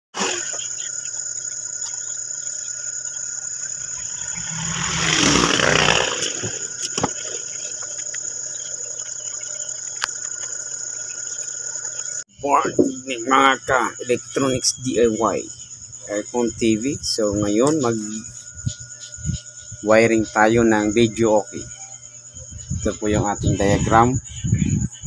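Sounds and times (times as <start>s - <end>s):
crickets trilling: 0.2s - 25.0s
rushing noise: 3.8s - 7.4s.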